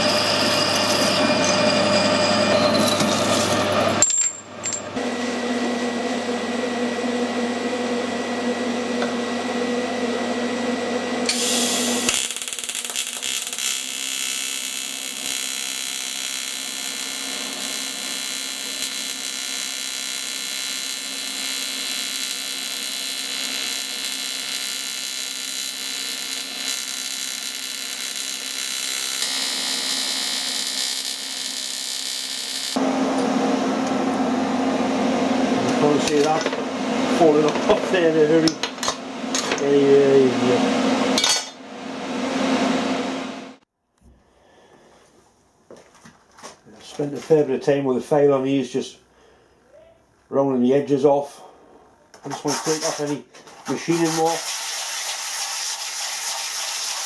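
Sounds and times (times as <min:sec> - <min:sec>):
metal lathe turning steel: 0:00.0 - 0:04.1, 0:11.3 - 0:32.8
machine humming: 0:05.0 - 0:43.6
welding arc buzzing hiss: 0:11.2 - 0:32.8.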